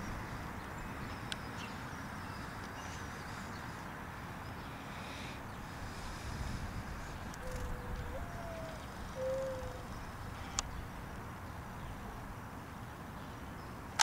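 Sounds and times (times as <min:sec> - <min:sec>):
low outdoor rumble: 0:00.0 - 0:13.8
mourning dove cooing: 0:07.1 - 0:10.6.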